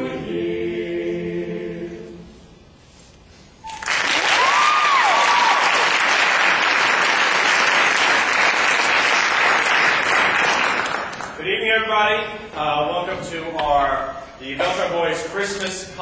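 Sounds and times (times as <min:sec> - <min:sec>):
male a cappella group singing: 0:00.0 - 0:02.4
audience applause: 0:03.7 - 0:11.4.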